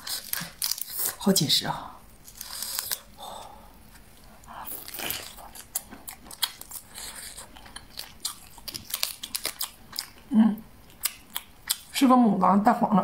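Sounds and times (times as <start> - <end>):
prawn shell crunching: 0.0 - 1.2, 2.2 - 3.2, 3.9 - 10.2.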